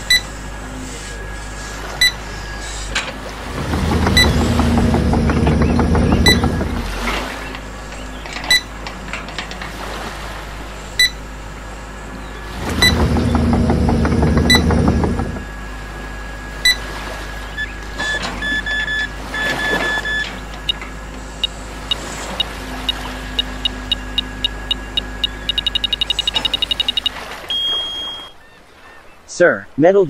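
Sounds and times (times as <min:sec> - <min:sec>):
electric motor whirring: 0:01.0 - 0:07.6, 0:12.5 - 0:15.7
short high beeps: 0:22.9 - 0:28.4.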